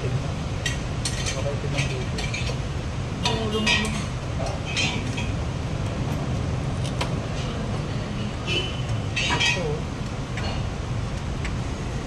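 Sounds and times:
light metallic clicks and clinks: 0.6s - 2.6s.

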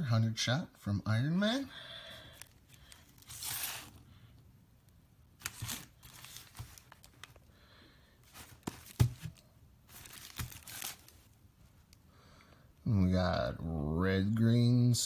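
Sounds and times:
cardboard box rustling: 2.9s - 4.0s, 5.4s - 7.4s, 8.2s - 11.3s.

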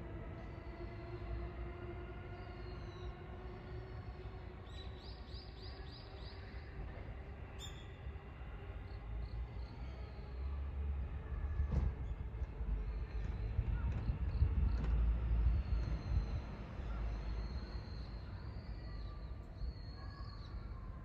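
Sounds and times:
low outdoor rumble: 11.0s - 17.4s.

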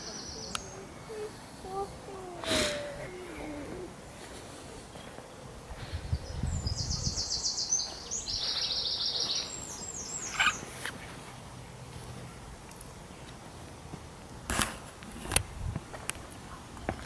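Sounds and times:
songbird trilling song: 0.0s - 1.3s, 6.1s - 10.7s.

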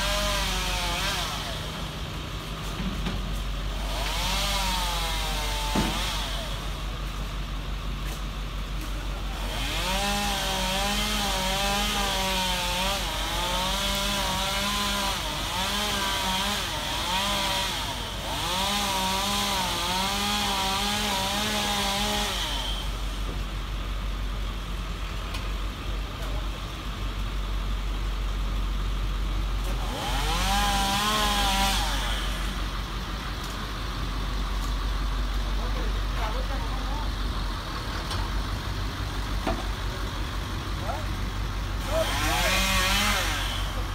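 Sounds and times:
chainsaw cutting branches: 0.0s - 1.9s, 2.6s - 7.2s, 9.3s - 23.2s, 29.6s - 32.6s, 41.8s - 43.9s.

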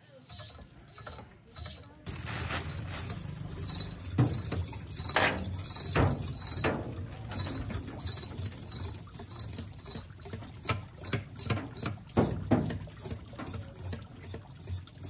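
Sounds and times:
plastic bag rustling: 2.0s - 5.5s.

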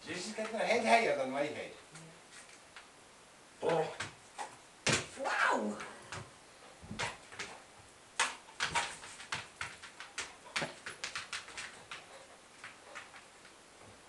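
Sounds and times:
dog claws knocking on floor: 8.2s - 13.2s.

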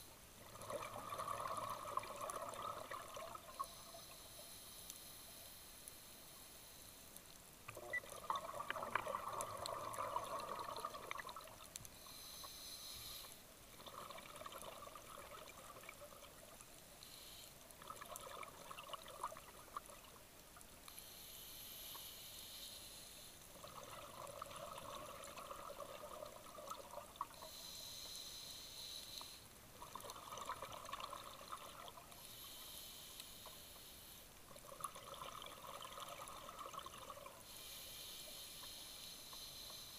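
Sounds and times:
exhaled bubbles rushing: 0.4s - 3.6s, 7.8s - 11.6s, 13.8s - 16.5s, 23.6s - 27.4s, 34.6s - 37.3s.

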